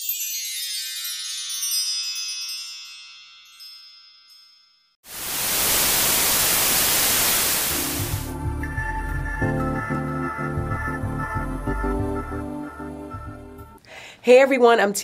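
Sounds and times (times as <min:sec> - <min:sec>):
tv static hiss: 0:05.1 - 0:08.3.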